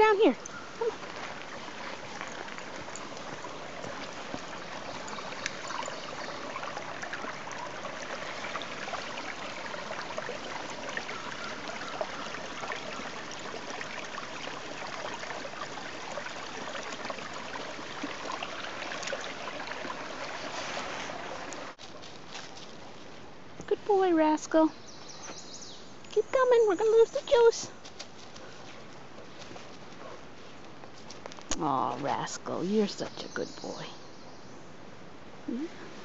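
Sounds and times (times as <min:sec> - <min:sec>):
stream babbling over stones: 0:00.0 - 0:22.1.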